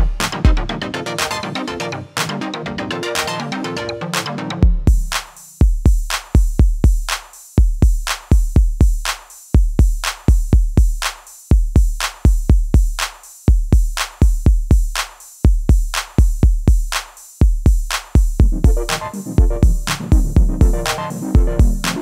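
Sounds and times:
electronic music with drum-machine beat: 0.0 - 22.0.

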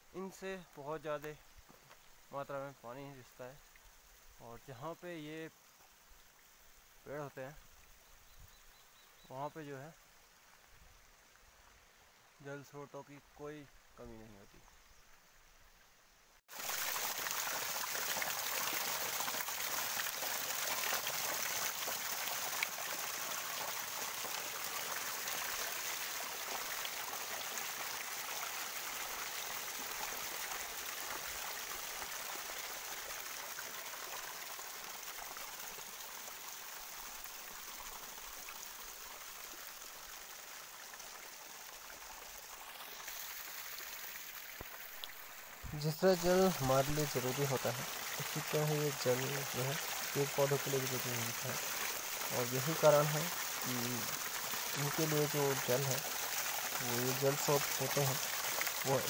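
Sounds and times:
water splashing over rocks: 16.5 - 59.0.

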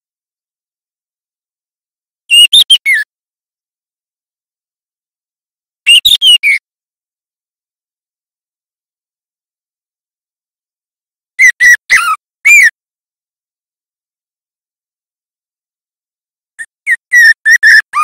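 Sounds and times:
bird whistled calls: 2.3 - 3.0, 5.9 - 6.6, 16.6 - 18.0.

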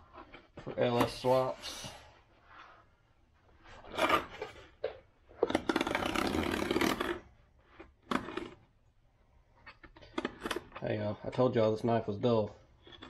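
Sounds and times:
knife cutting tape and cardboard: 5.4 - 7.2.

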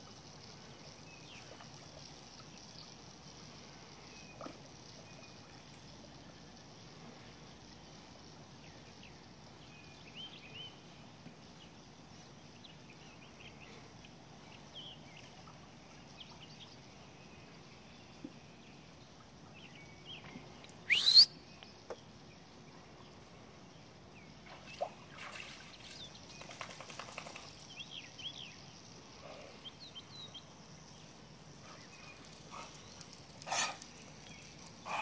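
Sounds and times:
quiet outdoor ambience: 0.0 - 35.0
birds chirping: 27.8 - 35.0.

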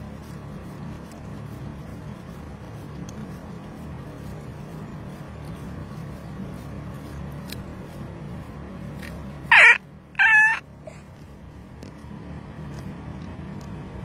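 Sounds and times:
low car cabin hum: 0.0 - 14.0
high-pitched meow-like cries: 9.5 - 10.6.

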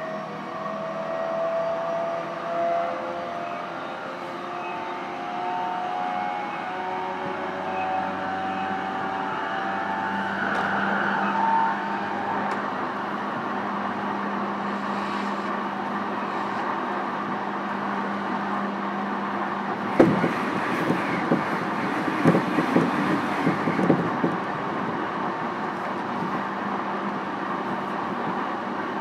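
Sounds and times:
electric train rolling and humming: 0.0 - 29.0
wheels clacking over rail joints: 19.7 - 24.5.

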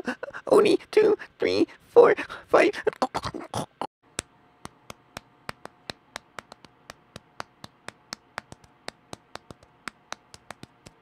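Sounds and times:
fingertips tapping on rubber toy: 4.6 - 11.0.

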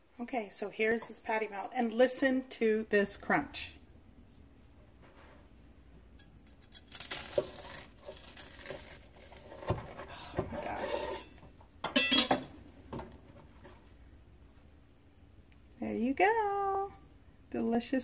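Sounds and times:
knife crunching toasted bread: 6.5 - 9.8.

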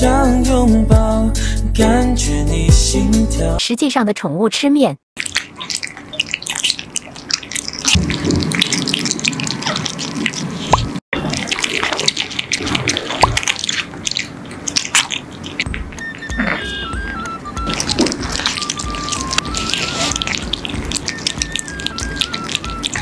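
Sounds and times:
cats chewing and slurping meat: 5.2 - 23.0.

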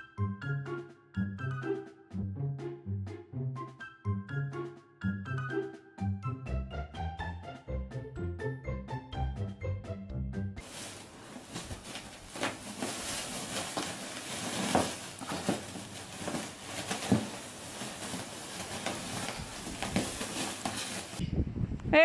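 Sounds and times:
plastic sack crinkling and rustling: 10.6 - 21.2
sharp crackles of sack: 10.6 - 21.2.

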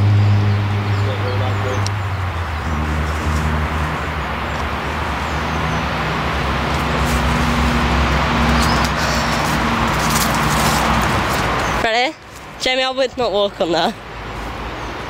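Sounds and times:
road traffic rumble: 0.0 - 15.0
rustling in undergrowth: 2.6 - 5.8, 6.5 - 15.0.

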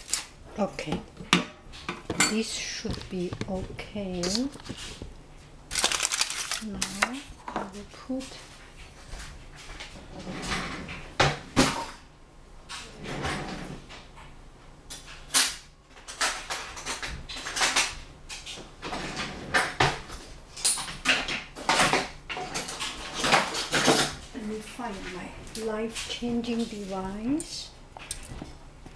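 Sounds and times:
kitchen knocks and clatters: 0.0 - 5.1, 5.8 - 12.0, 12.7 - 24.3.

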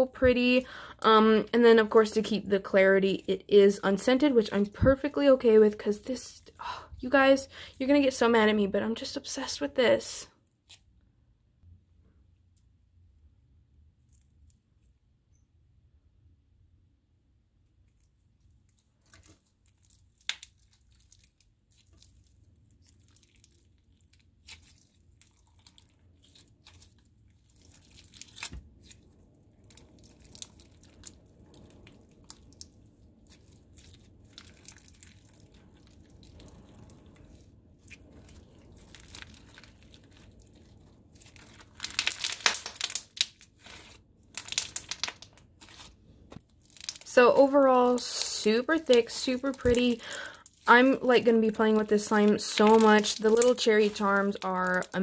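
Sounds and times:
slime crackling and popping: 18.5 - 55.0.

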